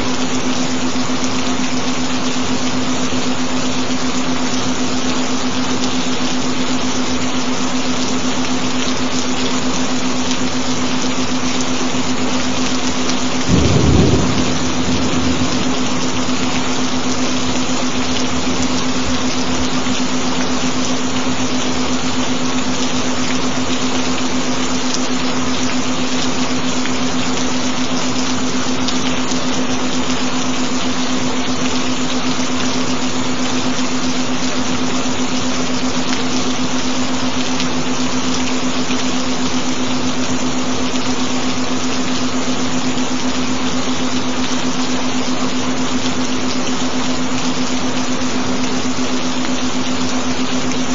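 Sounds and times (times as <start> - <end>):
steady rain hiss: 0.0 - 50.9
constant low tone: 12.5 - 23.6.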